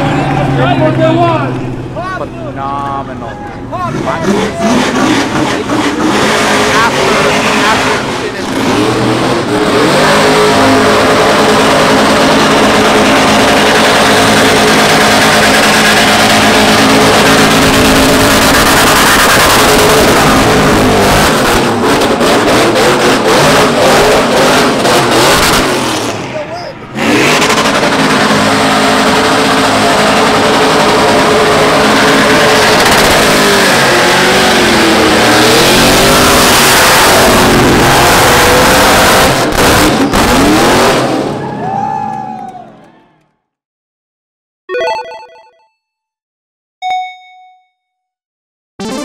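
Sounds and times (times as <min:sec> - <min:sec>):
tyres screeching: 0:03.2 - 0:09.1
tyres spinning and screeching: 0:03.4 - 0:40.9
car engine revving hard: 0:03.8 - 0:26.3, 0:26.9 - 0:41.4.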